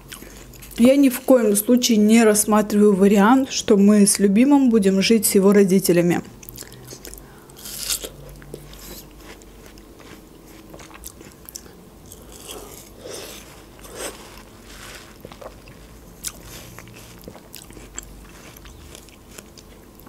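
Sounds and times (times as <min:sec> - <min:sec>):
wet crunching and smacking chewing: 0:06.4 - 0:20.0.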